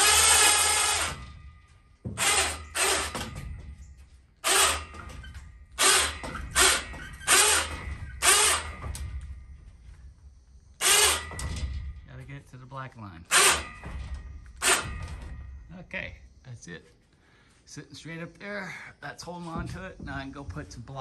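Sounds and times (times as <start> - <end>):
electric winch motor: 0.0 - 1.3, 2.2 - 3.3, 4.4 - 8.8, 10.8 - 11.4.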